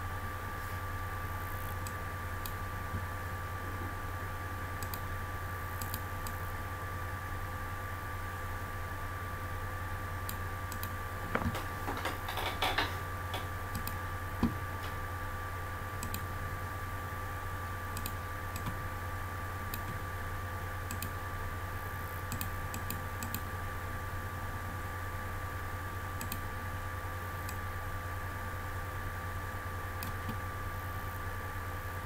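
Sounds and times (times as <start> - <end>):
electrical hum: 0.0 - 32.0
keyboard clatter: 11.3 - 13.5.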